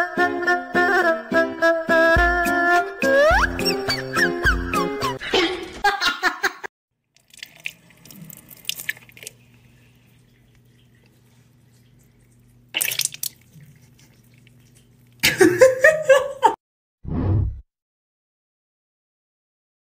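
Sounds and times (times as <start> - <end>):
music: 0.0 - 5.2
water running from a tap: 7.2 - 15.4.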